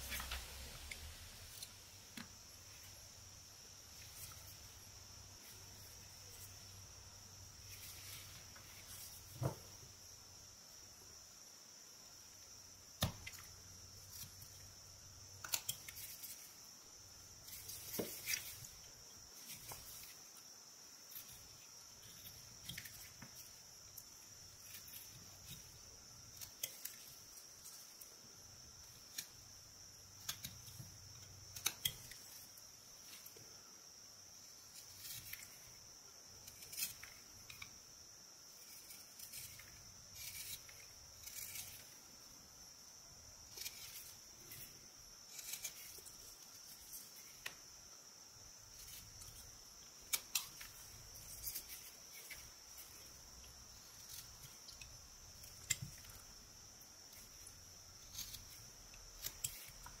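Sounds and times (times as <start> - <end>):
faint high-pitched hiss: 0.0 - 60.0
knife whittling wood: 13.0 - 33.6, 38.5 - 42.4, 43.4 - 47.7, 48.5 - 60.0.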